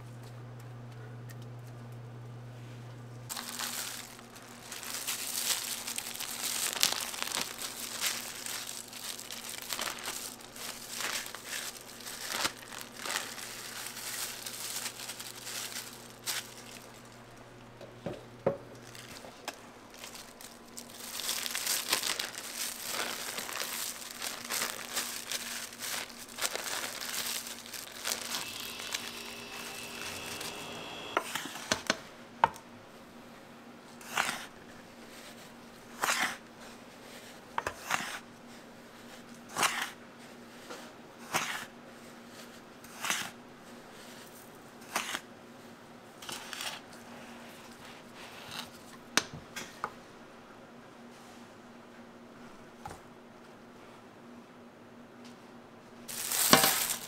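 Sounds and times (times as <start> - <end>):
plastic cling film crinkling: 3.3 - 17.4, 18.8 - 31.2, 56.1 - 57.0.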